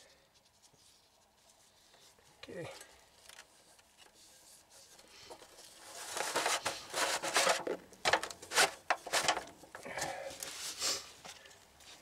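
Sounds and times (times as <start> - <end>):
foil crinkling: 5.2 - 9.4
metal canister scraping: 5.7 - 9.5.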